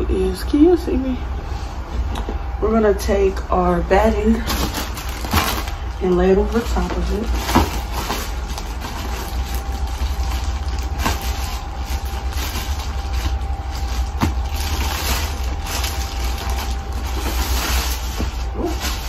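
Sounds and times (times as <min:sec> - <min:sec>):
plastic bag rustling: 0:04.0 - 0:19.0.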